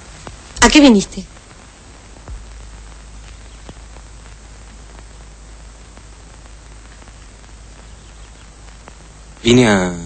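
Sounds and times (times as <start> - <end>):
tape hiss: 0.0 - 10.0
faint ticks: 1.4 - 5.3, 5.9 - 9.4.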